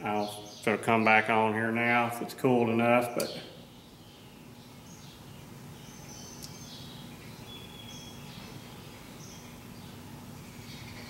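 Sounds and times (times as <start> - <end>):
low electrical hum: 0.0 - 11.0
faint bird chirps: 3.3 - 11.0.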